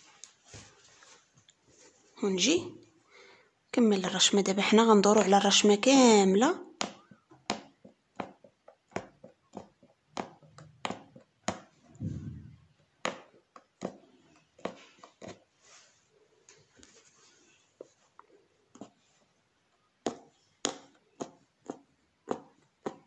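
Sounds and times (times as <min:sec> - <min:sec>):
low muffled thump: 0:12.0 - 0:12.7.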